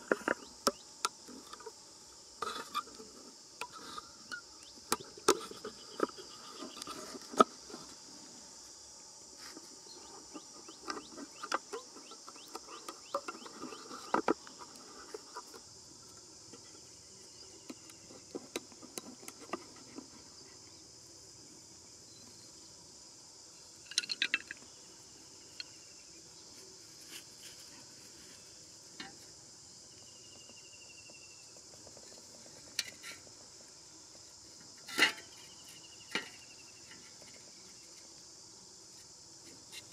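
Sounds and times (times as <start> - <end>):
insects buzzing: 0.0 - 39.9
clicks and knocks from handling objects: 23.8 - 24.7.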